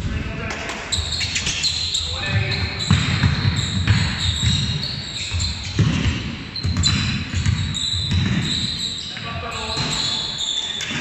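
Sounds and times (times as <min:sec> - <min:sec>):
basketball dribbling on wooden floor: 0:02.3 - 0:08.8.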